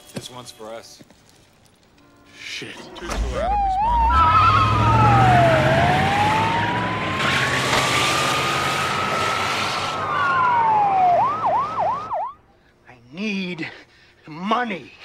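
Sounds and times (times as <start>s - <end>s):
police siren wailing and yelping: 3.2s - 12.4s.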